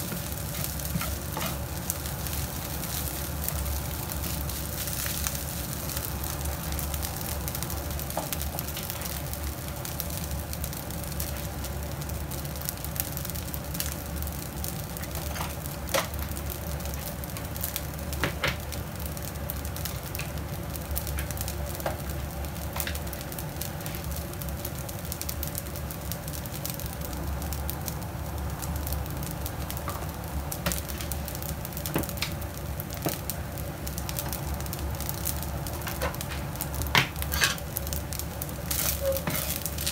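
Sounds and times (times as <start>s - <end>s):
rice sizzling in a pan: 0.0s - 39.9s.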